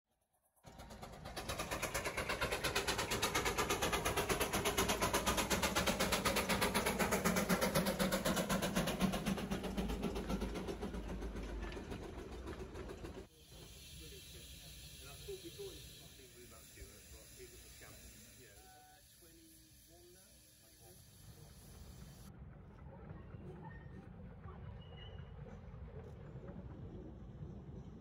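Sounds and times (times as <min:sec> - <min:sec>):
steam locomotive exhaust beating: 0:00.7 - 0:22.6.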